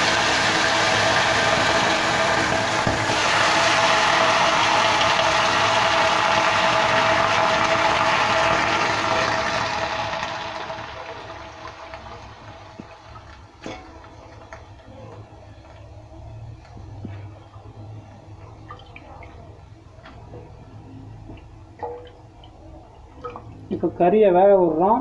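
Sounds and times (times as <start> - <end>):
chicken sizzling in hot oil: 0.0 - 15.2.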